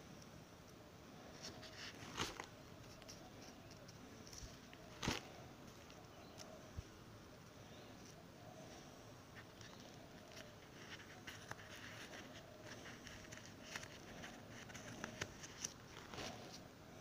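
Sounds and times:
plastic sleeves crinkling: 1.4s - 6.5s, 9.4s - 16.6s.

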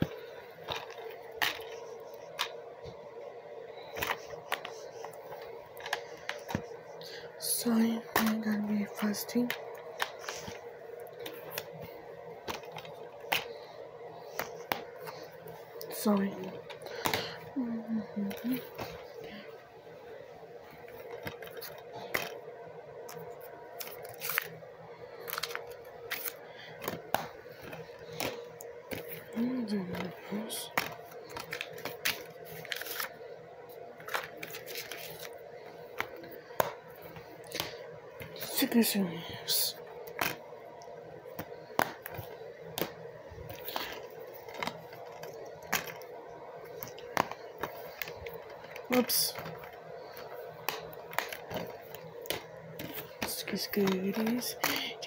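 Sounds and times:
faint steady hum: 0.0s - 55.0s
plastic cases clicking: 25.2s - 33.1s, 34.0s - 38.5s, 41.3s - 46.1s, 46.7s - 55.0s.

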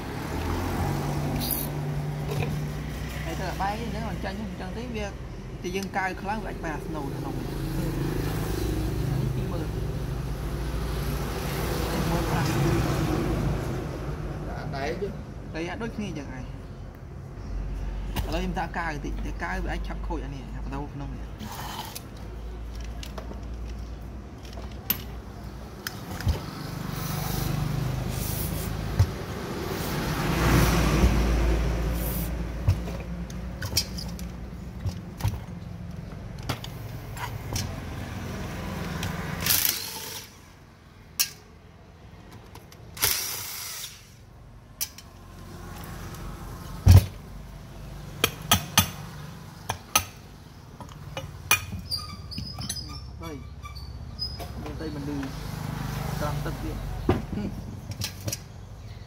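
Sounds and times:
tools and metal parts knocking: 32.7s - 36.8s, 50.8s - 53.0s.

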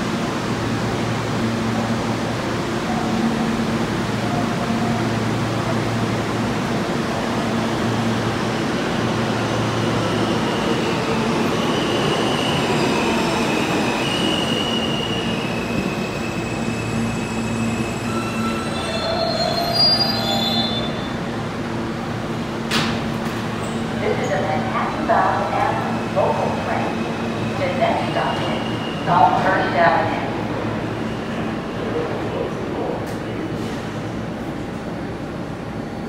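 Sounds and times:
subway train braking: 0.0s - 36.0s
wheel and brake squeals: 14.0s - 21.2s
train doors opening: 22.3s - 24.5s.

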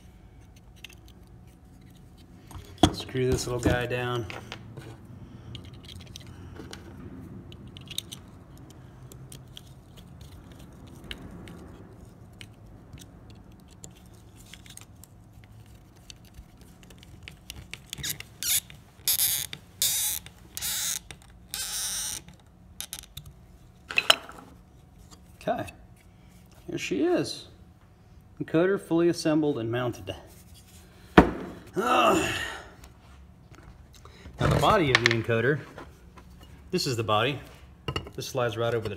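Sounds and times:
high-pitched screw squeaks: 17.9s - 22.3s.

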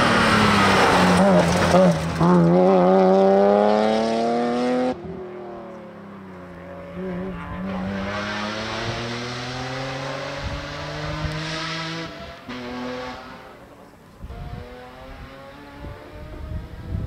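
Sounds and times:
car engine accelerating hard: 0.0s - 17.0s.

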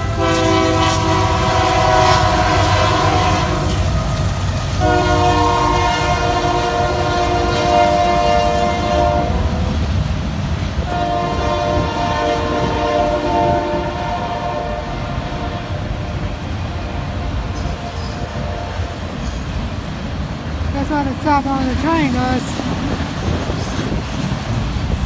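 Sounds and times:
locomotive air horn blasts: 0.0s - 3.9s, 4.8s - 9.6s, 10.8s - 19.1s
train rumbling past: 0.0s - 25.0s.

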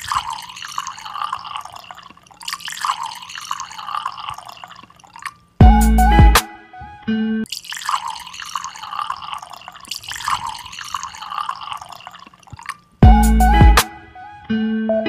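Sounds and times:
drink pouring into a mug: 0.0s - 5.5s, 7.5s - 13.0s.

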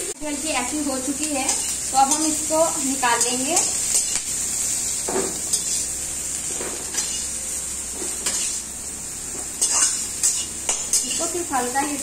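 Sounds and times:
vegetables sizzling in pan: 0.0s - 12.0s
metal spatula scraping pan: 9.6s - 11.4s.

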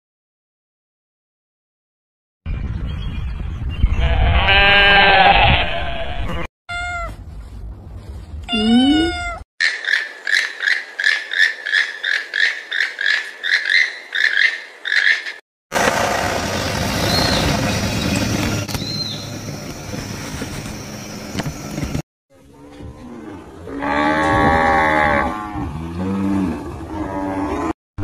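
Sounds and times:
outdoor noise: 2.5s - 27.8s
sheep bleating: 4.0s - 7.0s
kitten meowing: 6.7s - 7.2s, 8.5s - 9.4s.

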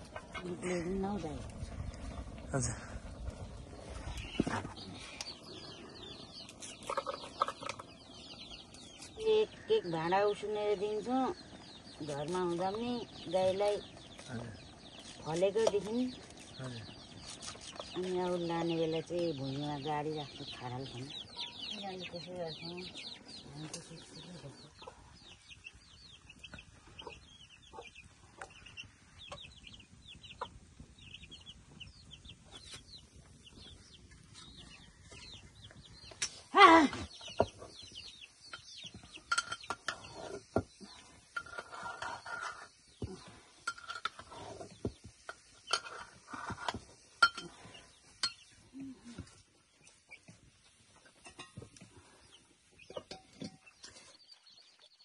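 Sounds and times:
chickens clucking and cheeping: 3.1s - 9.2s, 21.0s - 36.2s, 44.2s - 55.0s.

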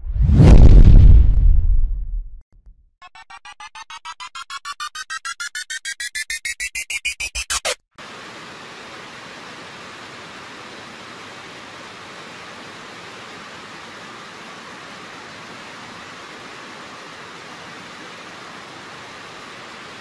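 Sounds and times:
rising electronic beeps: 3.0s - 7.8s.

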